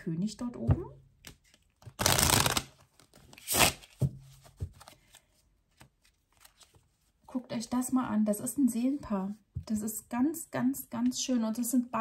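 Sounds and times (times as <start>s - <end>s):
cards shuffling: 1.2s - 6.9s.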